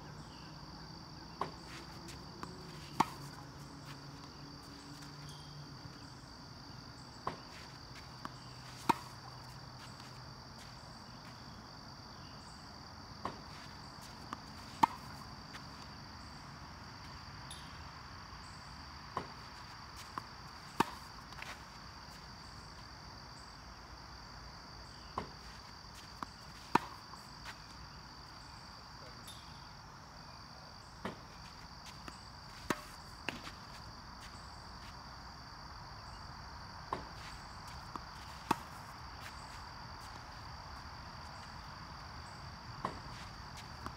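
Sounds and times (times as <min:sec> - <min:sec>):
high insect drone: 0:00.0 - 0:43.9
tennis racket hitting ball: 0:14.3 - 0:15.6.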